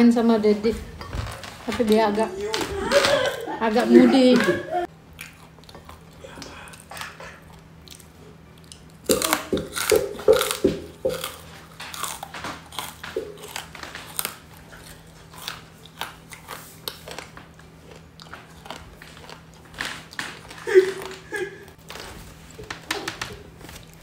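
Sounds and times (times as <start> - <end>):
crunchy chewing: 5.0 - 24.0.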